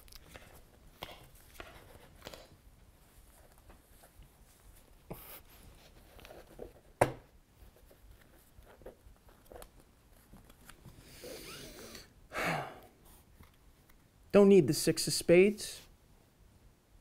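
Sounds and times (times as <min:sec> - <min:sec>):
cards sliding and rustling: 0:00.4 - 0:02.6.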